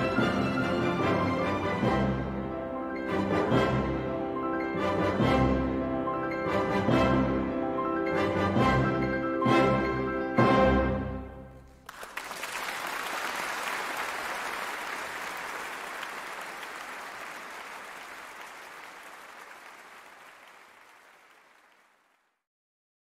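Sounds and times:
audience applause: 11.8s - 22.4s.

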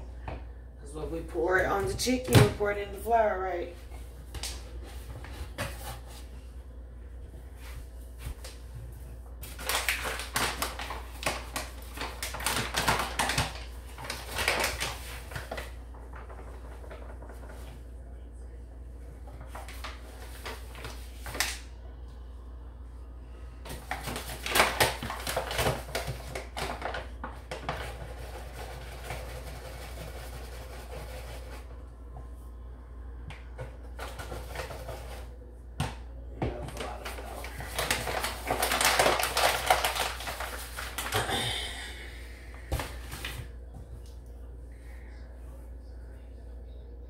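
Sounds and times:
flour bag rustling and crinkling: 9.3s - 17.9s, 23.6s - 31.7s, 36.6s - 41.4s.

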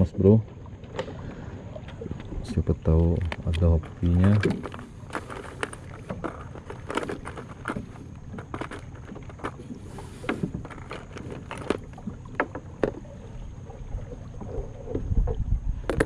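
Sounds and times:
lures rattling in plastic box: 3.2s - 9.6s, 10.6s - 11.8s.

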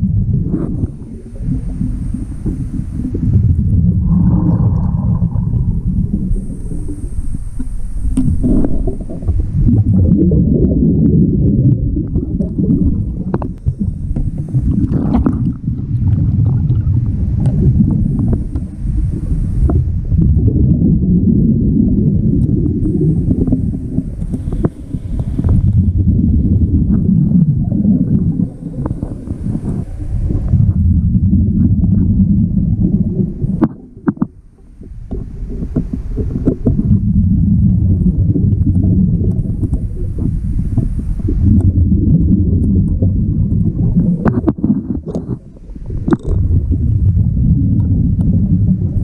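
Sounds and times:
bubbling exhaled air: 0.0s - 49.0s
regulator breath hiss: 24.0s - 25.7s.

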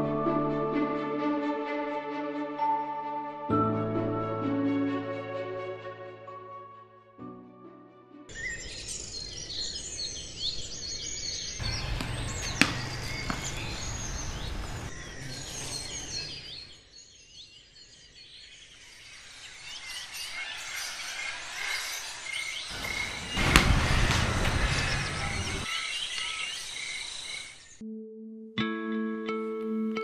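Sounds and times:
birds chirping and calling: 8.3s - 27.8s.

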